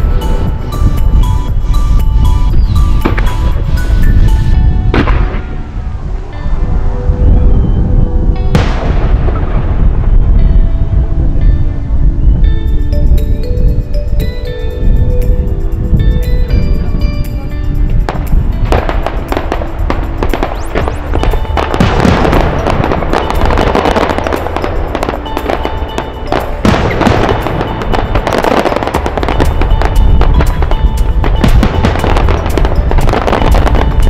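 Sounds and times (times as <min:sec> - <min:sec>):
background music: 0:00.0 - 0:34.0
fireworks crackling and bangs: 0:18.0 - 0:34.0.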